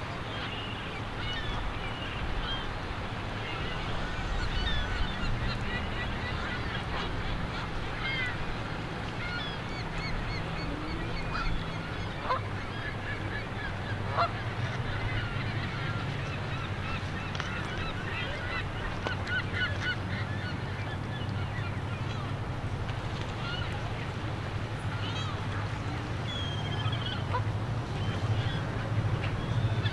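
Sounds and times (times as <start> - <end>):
geese honking: 9.3 - 22.3, 26.3 - 29.9.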